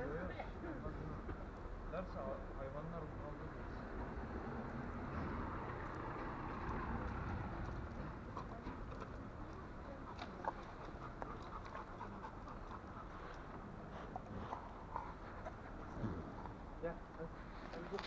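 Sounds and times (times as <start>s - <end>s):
dogs panting: 3.8s - 18.0s.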